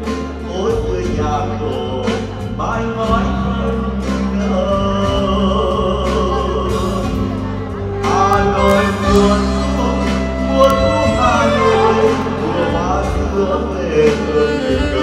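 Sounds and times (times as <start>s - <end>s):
acoustic guitar: 0.0s - 15.0s
man singing a slow ballad: 0.0s - 15.0s
saxophone: 6.2s - 15.0s.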